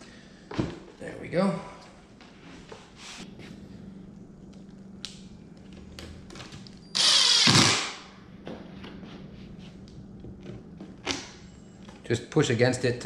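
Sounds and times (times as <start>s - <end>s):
impact driver driving screw into board: 7.0s - 8.0s.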